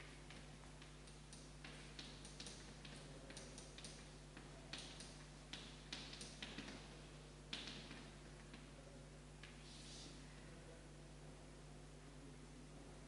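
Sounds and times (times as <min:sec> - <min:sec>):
chalk on blackboard: 0:09.4 - 0:10.2.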